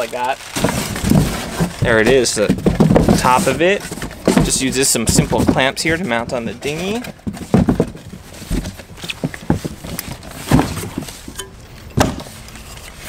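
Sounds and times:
cardboard boxes being rummaged: 0:00.0 - 0:13.0
sharp knocks: 0:10.5 - 0:12.3.

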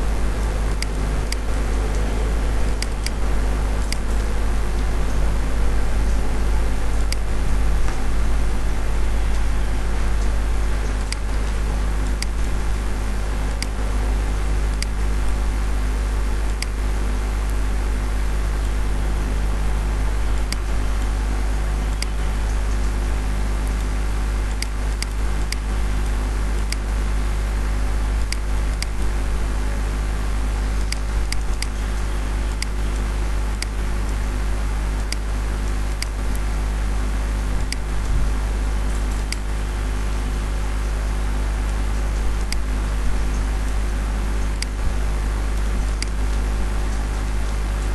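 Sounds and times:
electrical fan hum: 0:00.0 - 0:47.9
computer mouse clicks: 0:03.8 - 0:04.2, 0:30.8 - 0:32.0, 0:38.9 - 0:39.5, 0:42.4 - 0:42.7.

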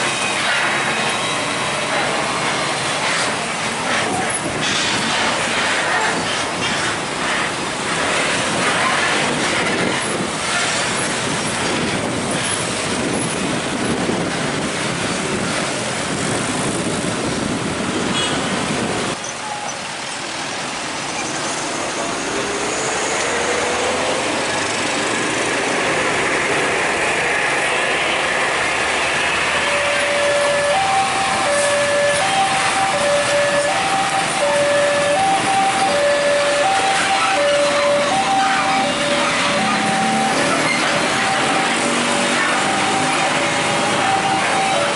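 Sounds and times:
heavy trucks passing: 0:00.0 - 0:44.9
truck engine pulling away: 0:21.1 - 0:44.9.

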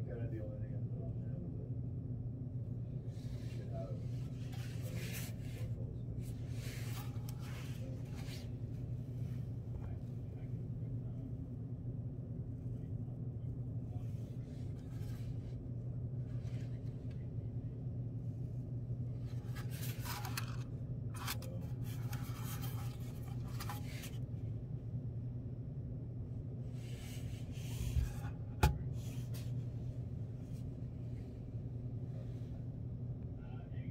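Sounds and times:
steady low hum: 0:00.0 - 0:33.9
rustling and scraping of metal device: 0:04.2 - 0:08.5, 0:19.2 - 0:24.2.

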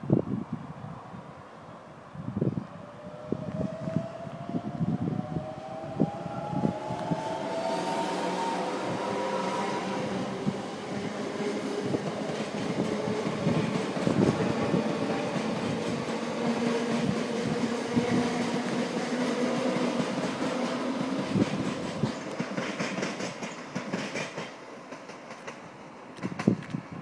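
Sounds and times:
electric train hum and rumble: 0:00.0 - 0:27.0
train wheels clicking over rail joints: 0:10.2 - 0:27.0.

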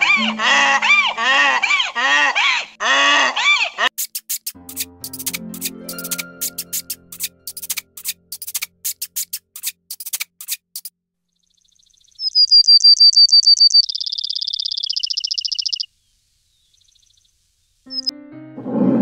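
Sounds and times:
sparrow singing: 0:00.0 - 0:01.2, 0:04.7 - 0:09.3, 0:11.6 - 0:15.9, 0:17.9 - 0:18.2
quick sharp clicks: 0:04.0 - 0:10.9.

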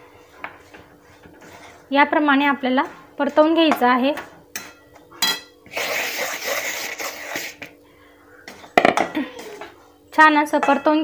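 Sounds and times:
metal spatula scraping pan: 0:01.1 - 0:01.9.

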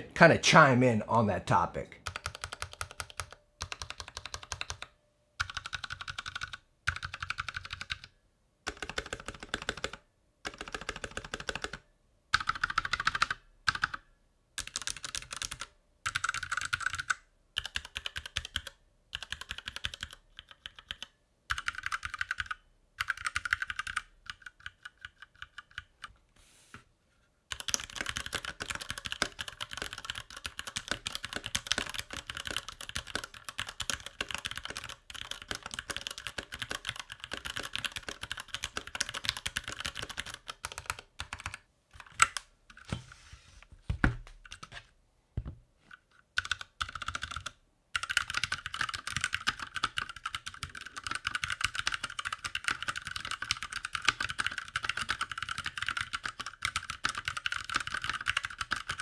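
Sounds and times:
mechanical keyboard typing: 0:02.0 - 0:14.0, 0:14.6 - 0:26.1, 0:27.5 - 0:42.9, 0:46.3 - 0:59.0.

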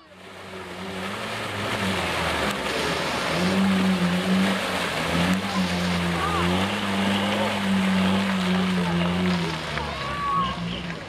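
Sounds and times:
engine running under load: 0:00.0 - 0:11.0
mud and water sloshing: 0:00.0 - 0:11.0.

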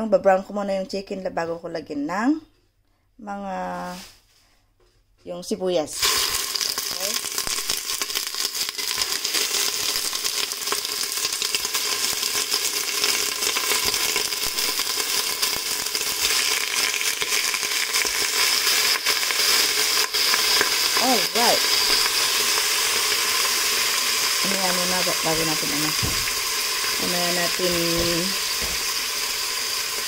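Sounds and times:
chicken sizzling in hot oil: 0:06.0 - 0:30.0.

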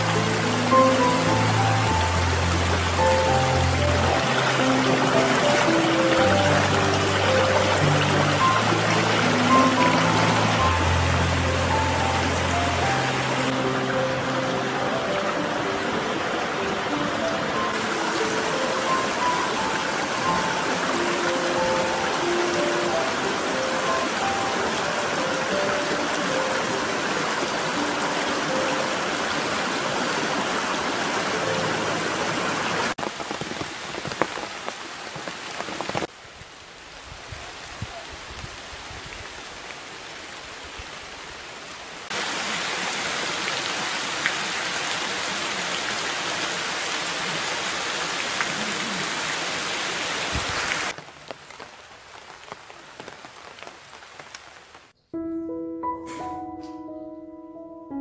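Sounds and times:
heavy rain on leaves: 0:00.0 - 0:55.0
soft piano notes: 0:55.1 - 0:58.0.

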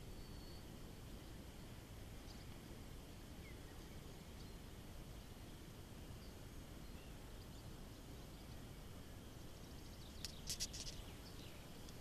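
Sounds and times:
distant bird chirps: 0:00.0 - 0:00.8, 0:06.1 - 0:12.0.

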